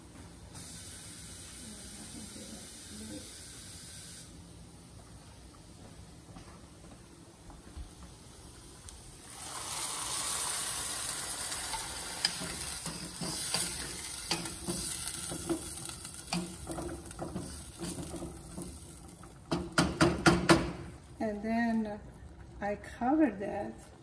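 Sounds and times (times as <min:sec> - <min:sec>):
sizzling hiss in hot pot: 0:00.0 - 0:05.0, 0:07.9 - 0:20.0
wooden spoon knocking against pot: 0:19.5 - 0:20.9.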